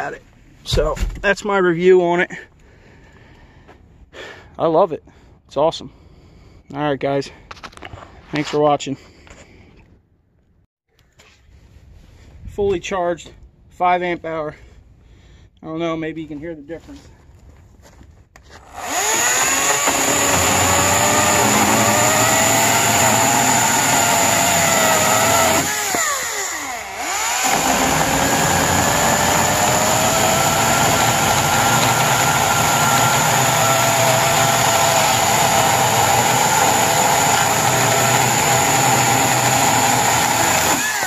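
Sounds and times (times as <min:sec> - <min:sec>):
chainsaw cutting wood: 0:18.6 - 0:41.0.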